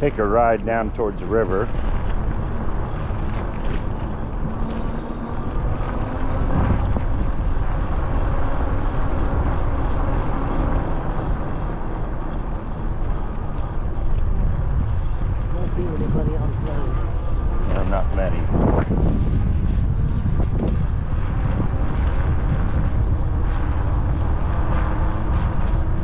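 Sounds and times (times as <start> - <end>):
road noise: 0.0 - 26.0
car engine: 1.0 - 18.5.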